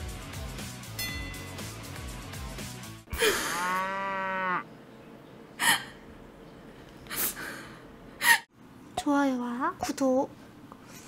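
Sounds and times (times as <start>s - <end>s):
intro music: 0.0s - 3.1s.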